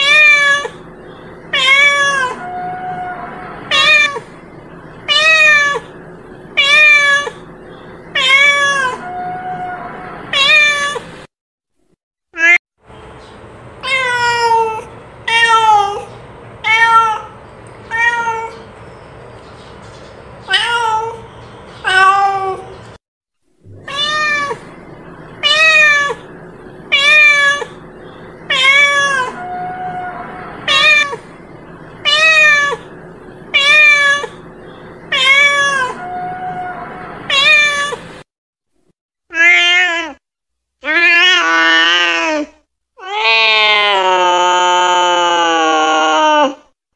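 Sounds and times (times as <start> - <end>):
cat meowing: 0.0 - 0.8, 1.5 - 4.3, 5.1 - 6.0, 6.6 - 7.5, 8.1 - 11.0, 13.8 - 18.6, 20.5 - 22.8, 23.7 - 24.7, 25.4 - 26.3, 26.9 - 27.8, 28.5 - 31.3, 32.0 - 32.9, 33.5 - 34.4, 35.1 - 38.1, 39.3 - 40.2, 40.8 - 46.6.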